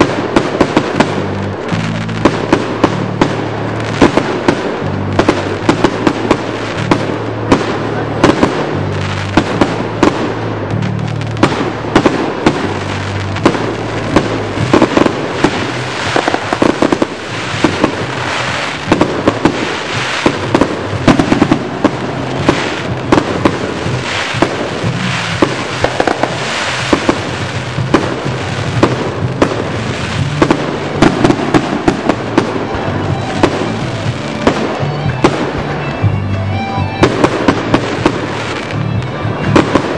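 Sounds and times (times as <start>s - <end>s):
fireworks launching and bursting: 0.0s - 39.9s.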